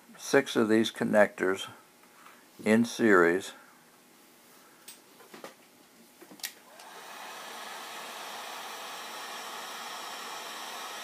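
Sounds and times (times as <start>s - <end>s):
heat gun blowing air: 6.7s - 11.0s.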